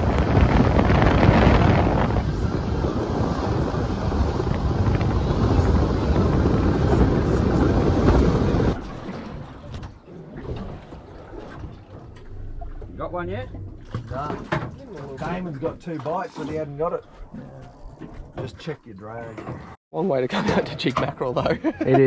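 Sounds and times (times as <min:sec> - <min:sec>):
wind buffeting microphone: 0:00.0 - 0:09.8
water rushing against boat hull: 0:00.0 - 0:19.8.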